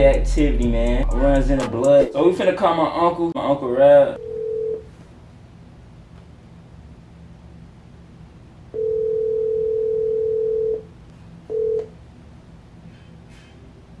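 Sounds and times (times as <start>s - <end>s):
telephone ringback tone: 4.2s - 4.9s, 8.8s - 10.8s, 11.5s - 11.9s.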